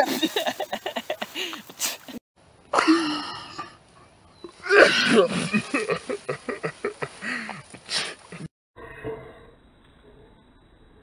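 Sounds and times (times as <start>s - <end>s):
laughter: 0.0s - 1.4s, 5.5s - 8.5s.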